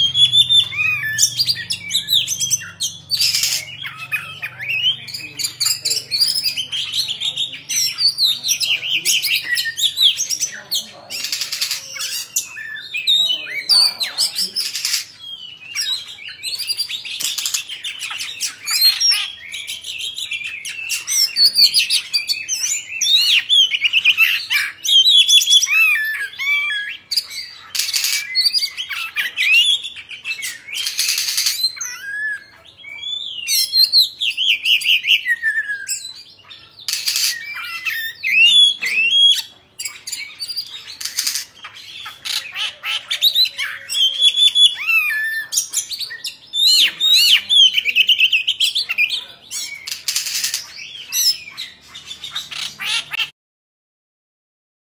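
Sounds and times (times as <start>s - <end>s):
bird singing whistled phrases: 0.0s - 10.2s, 11.3s - 52.8s.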